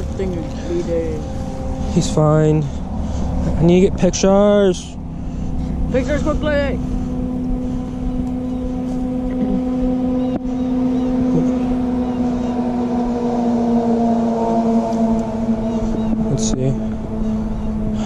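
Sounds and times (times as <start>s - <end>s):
low rumble: 0.0s - 18.0s
motor humming steadily: 0.0s - 18.0s.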